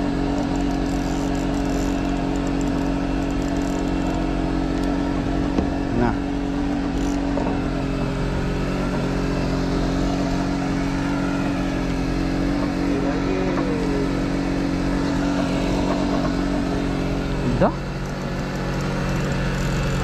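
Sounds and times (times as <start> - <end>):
boat engine running: 0.0 - 20.0.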